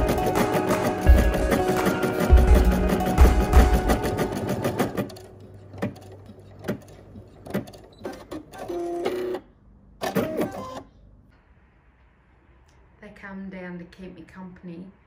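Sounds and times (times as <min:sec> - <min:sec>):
embroidery machine hum: 0:00.0 - 0:09.4.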